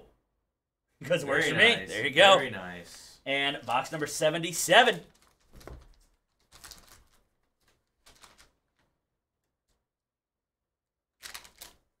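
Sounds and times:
plastic wrapper crinkling: 5.1s - 8.8s, 11.2s - 11.9s.

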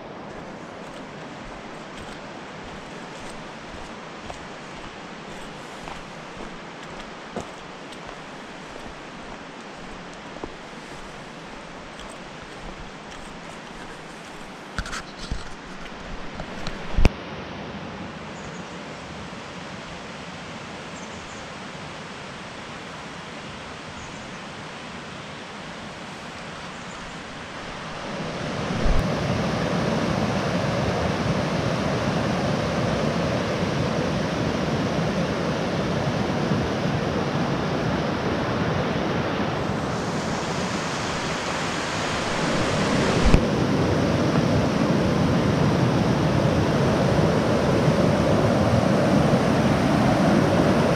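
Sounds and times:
creek rushing over rocks: 0.0s - 17.1s, 25.9s - 31.2s, 39.1s - 50.9s.

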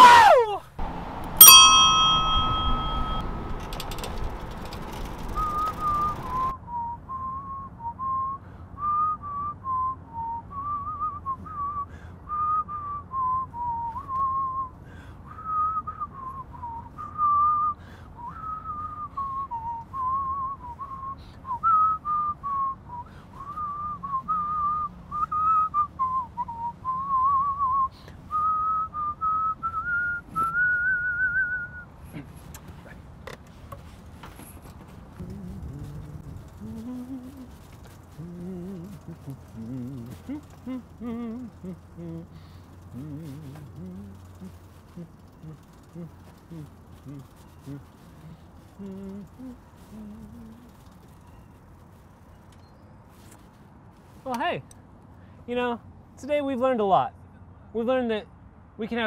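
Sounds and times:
bicycle bell ringing: 1.4s - 5.9s
whistled tune: 5.2s - 31.9s.

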